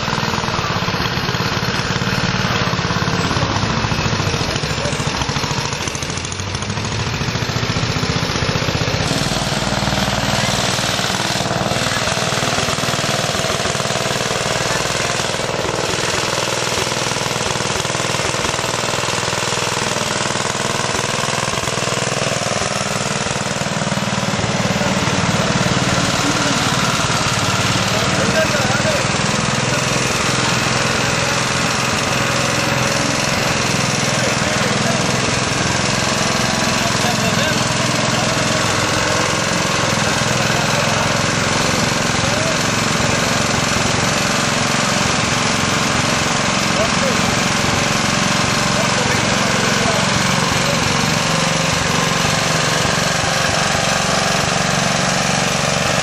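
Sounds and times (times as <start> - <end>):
tractor engine running: 0.0 - 56.0.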